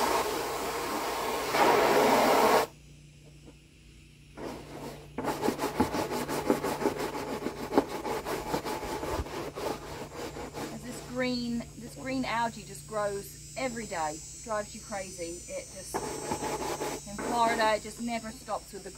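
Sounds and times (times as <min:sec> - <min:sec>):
hose water running into pool: 0:00.0 - 0:02.7, 0:04.4 - 0:18.9
scrub brush scrubbing plastic: 0:04.4 - 0:11.7, 0:15.9 - 0:18.5.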